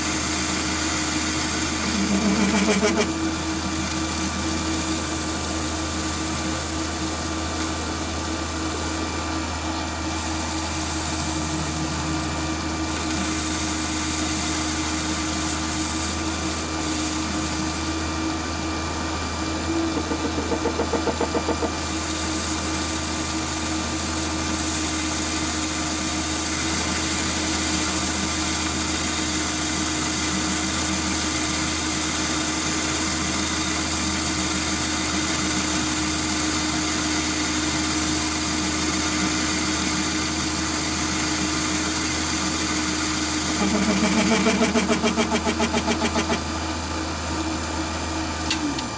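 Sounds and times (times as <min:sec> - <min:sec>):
metal lathe motor whining: 0:00.0 - 0:46.9.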